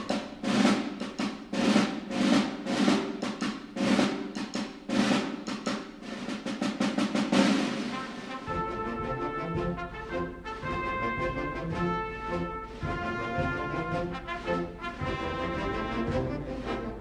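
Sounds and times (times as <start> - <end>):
snare and bass drum beat: 0.0 - 17.0
low instrumental music: 7.9 - 17.0.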